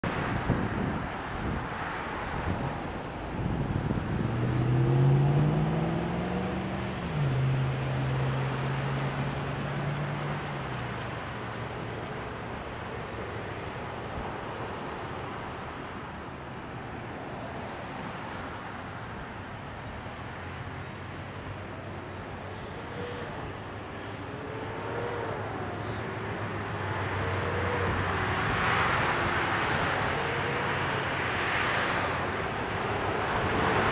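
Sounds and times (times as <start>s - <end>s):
passing car traffic: 0.0s - 33.9s
semi-truck passing: 0.0s - 33.9s
vehicle engine pulling away: 3.9s - 10.7s.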